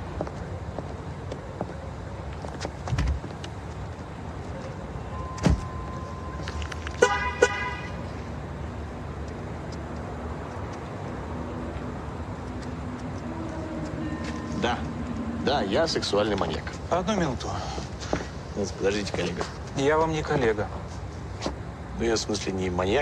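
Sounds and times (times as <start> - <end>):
low street rumble: 0.0 - 23.0
car horn chirps: 7.0 - 8.0.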